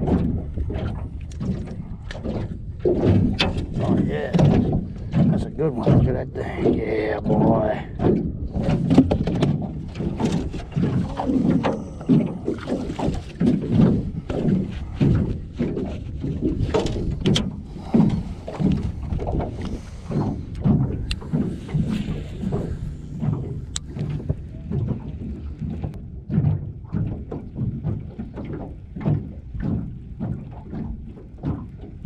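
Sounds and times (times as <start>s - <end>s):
waves slapping against boat hull: 0.0s - 32.0s
gear clicks and knocks: 8.0s - 32.0s.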